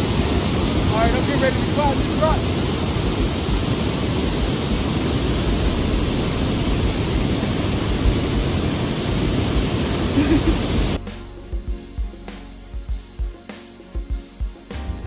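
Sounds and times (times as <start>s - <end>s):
waterfall and rapids rushing: 0.0s - 11.0s.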